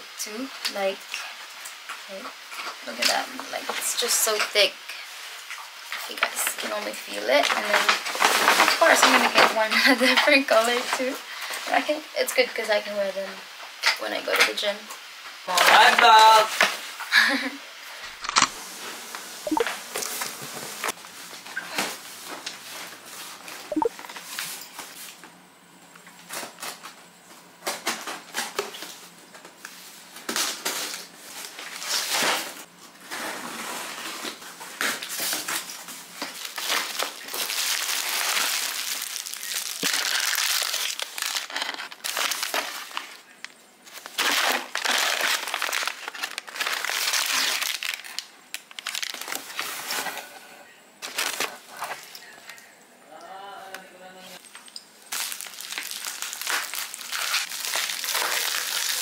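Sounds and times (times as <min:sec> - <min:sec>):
foil and cardboard crinkling: 0:05.9 - 0:11.8, 0:27.6 - 0:50.4, 0:51.0 - 0:52.3, 0:54.4 - 0:59.0.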